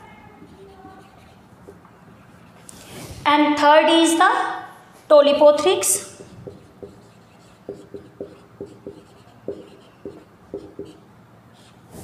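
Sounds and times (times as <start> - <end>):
marker squeaking on whiteboard: 0.0 - 3.0, 6.1 - 12.0.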